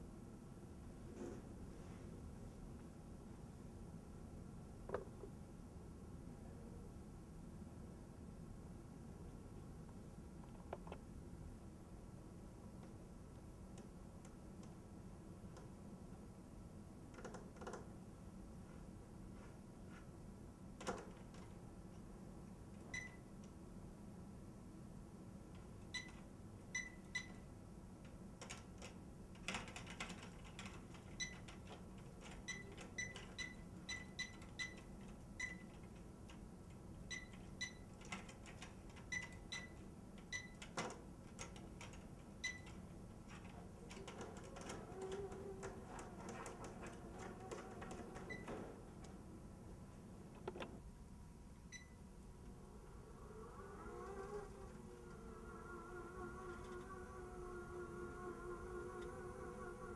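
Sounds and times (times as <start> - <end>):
keypad beeps: 22.9 - 23.2, 25.9 - 27.4, 31.2 - 31.5, 32.4 - 35.8, 37.1 - 37.9, 39.0 - 40.6, 42.4 - 42.8, 48.2 - 48.6, 51.7 - 52.0.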